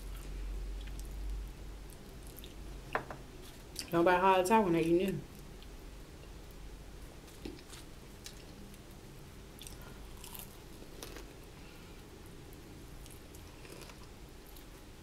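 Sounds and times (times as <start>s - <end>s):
crunchy chewing: 9.6s - 11.5s, 12.9s - 14.7s.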